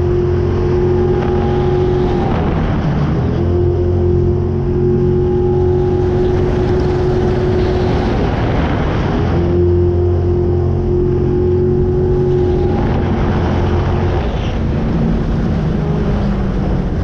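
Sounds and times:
boat engine running hard: 0.0 - 17.0
rushing water noise: 10.6 - 17.0.

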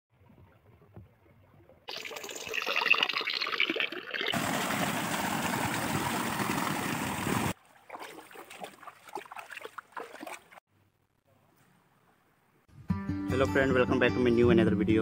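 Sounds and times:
water trickling and splashing: 0.1 - 10.6
small cascade pouring: 1.9 - 7.6.

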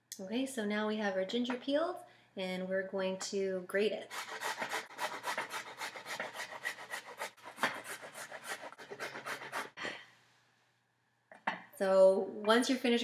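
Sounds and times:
ginger scraped on metal grater: 4.1 - 9.8.

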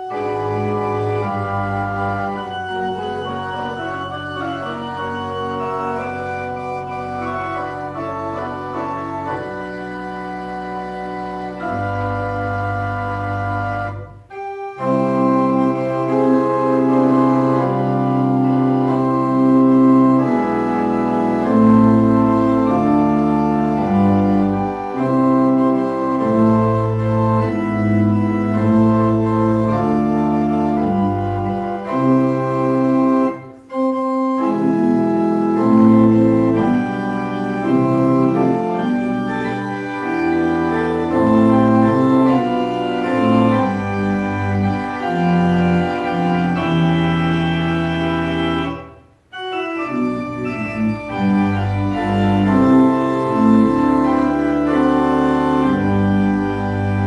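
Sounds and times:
church pipe organ chords: 0.0 - 57.0.

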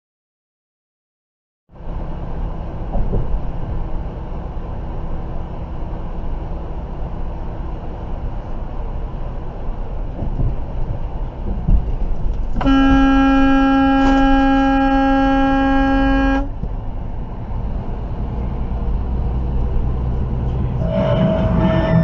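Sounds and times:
truck engine and tyres droning: 1.7 - 22.0
vehicle horn blast: 12.6 - 16.6, 20.8 - 22.0.

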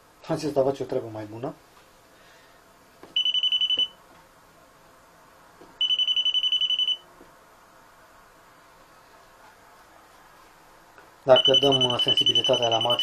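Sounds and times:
voltage detector beeping rapidly: 3.2 - 3.9, 5.8 - 7.0, 11.3 - 13.0.

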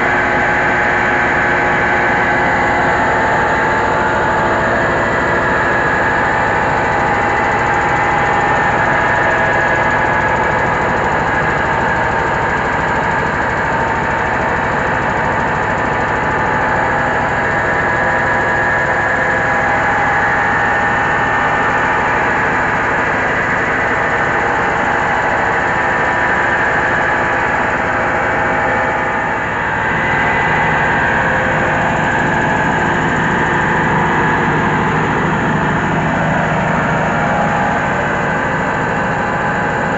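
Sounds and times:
rice huller engine and machinery: 0.0 - 39.9.

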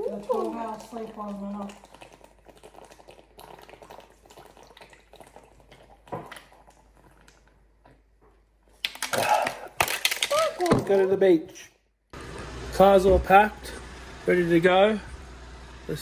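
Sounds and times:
small objects clicking: 8.8 - 10.7.

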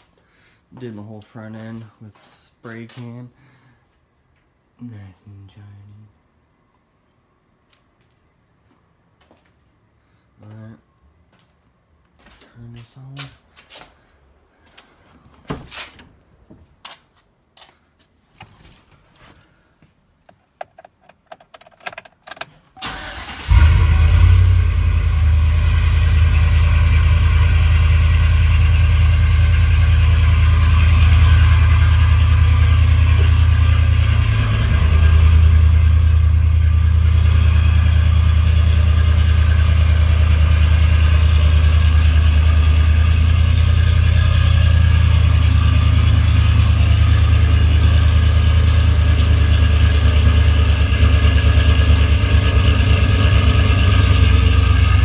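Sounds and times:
clicks and knocks: 20.2 - 22.7
engine starting and idling: 21.7 - 26.6.

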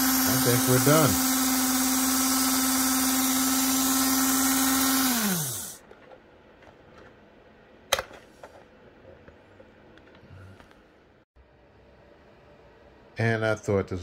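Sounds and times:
electric motor whining: 0.0 - 5.8.

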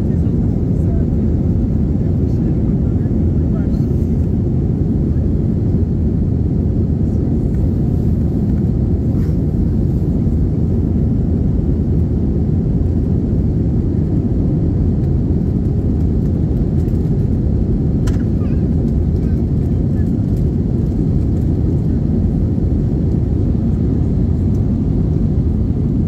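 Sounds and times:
jet cabin engine roar: 0.0 - 26.0.

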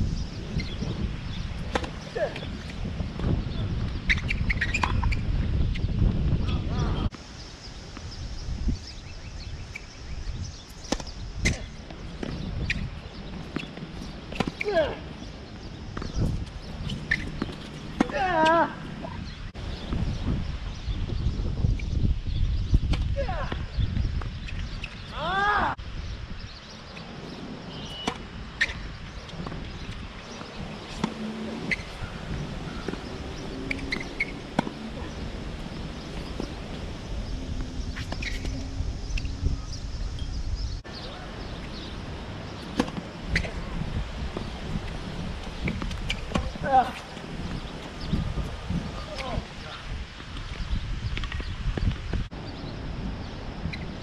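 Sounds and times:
low wind rumble: 0.0 - 54.0
faint bird chirps: 27.7 - 28.8
tennis balls struck by rackets: 32.7 - 36.6, 42.5 - 43.6.

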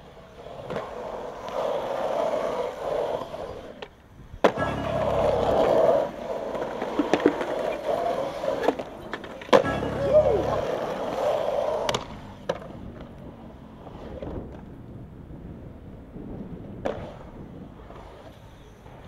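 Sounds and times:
skateboard clack: 0.0 - 15.2, 16.0 - 19.0
skateboard wheels rolling on concrete: 0.0 - 19.0.

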